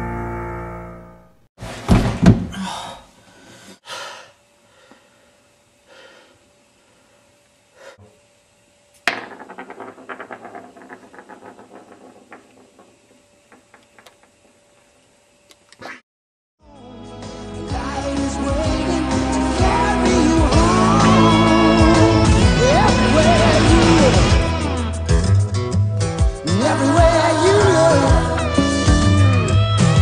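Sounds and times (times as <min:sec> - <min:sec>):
heavy thumps: 0:01.8 - 0:02.7
toy top rattling on wooden floor: 0:09.0 - 0:14.9.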